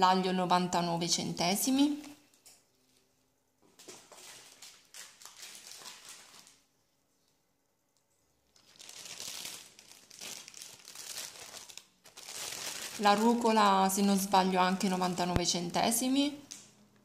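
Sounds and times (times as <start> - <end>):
plastic packaging crinkling: 3.8 - 6.7, 8.4 - 15.5.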